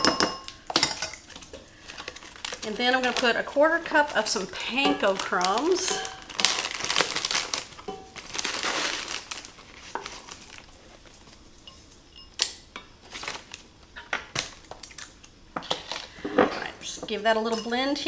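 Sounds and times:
dry crumbs rustling: 1.3 - 11.4
metal scoop clinking on skillet: 4.7 - 6.6, 7.8 - 8.2.

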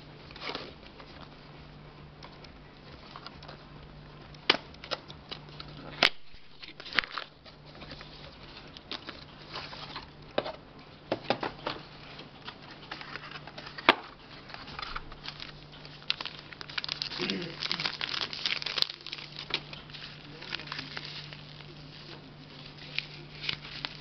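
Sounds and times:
cardboard rustling and scraping: 6.6 - 10.6, 11.5 - 16.2.

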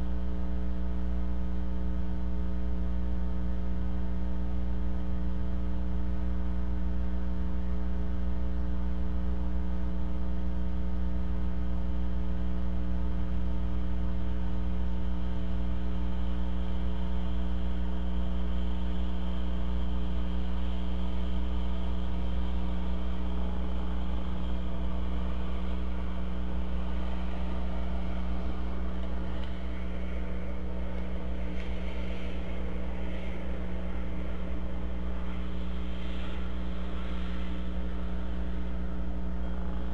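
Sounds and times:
electrical mains hum: 0.0 - 39.9
faint scratchy sounds: 15.0 - 39.9
faint high hiss: 15.4 - 39.9.

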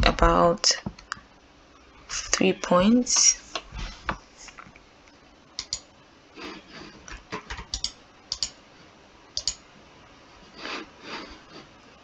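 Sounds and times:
soft rustles: 3.5 - 4.7
mouse and keyboard clicks: 5.6 - 5.8, 7.1 - 8.6, 9.4 - 9.6.

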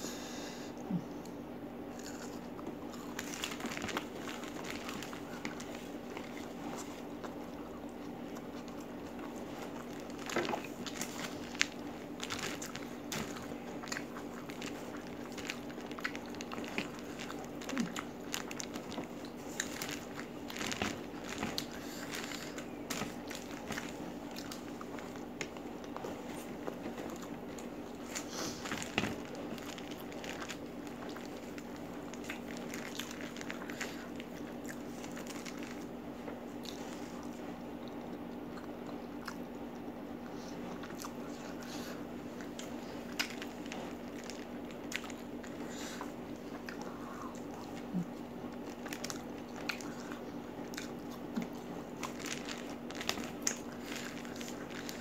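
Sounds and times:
steady low hum: 0.0 - 55.0
chewing and crunching: 1.0 - 55.0
paper crinkling: 3.0 - 37.5, 42.4 - 46.2, 47.4 - 55.0.

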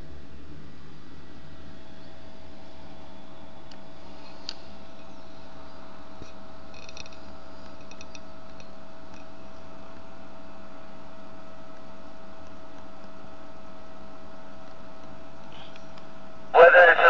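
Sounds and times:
radio speaker hiss: 16.5 - 17.0.

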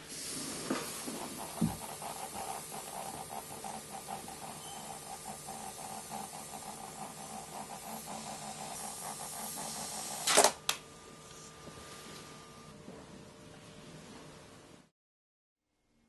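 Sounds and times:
faint rhythmic pulsing: 0.6 - 10.3.

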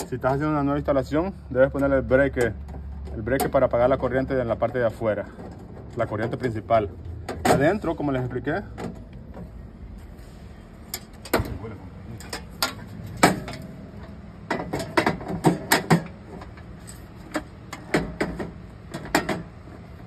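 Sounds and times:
sheet metal clanks and clicks: 1.8 - 7.9, 10.8 - 19.6.

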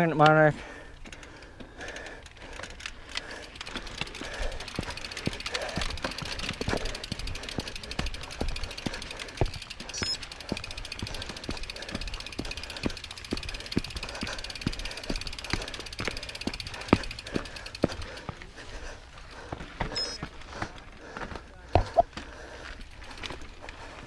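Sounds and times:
bike clicks and knocks: 0.0 - 18.5, 19.4 - 23.9
bike freehub ratcheting: 0.1 - 18.2.

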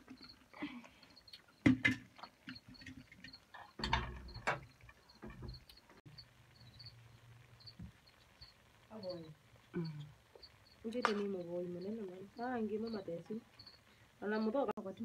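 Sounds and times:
insects chirping: 0.0 - 15.0
metal cookware clattering: 1.7 - 5.6.

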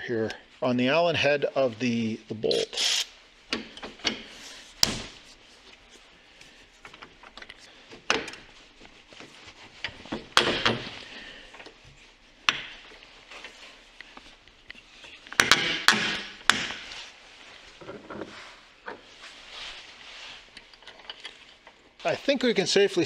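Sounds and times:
ratchet clicks and rubbing: 2.5 - 3.1.

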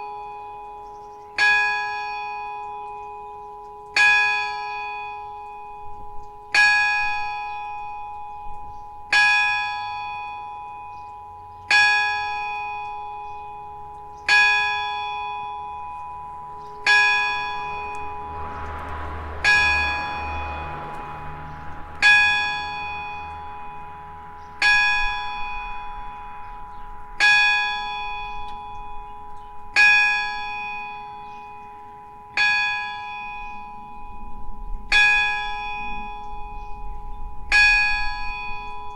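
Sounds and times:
church bell ringing: 0.0 - 38.9
rushing noise: 15.9 - 29.8.

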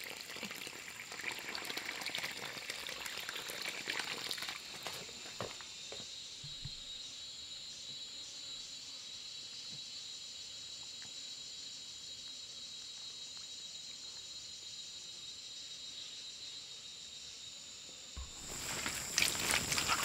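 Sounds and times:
insects droning: 0.0 - 20.0.

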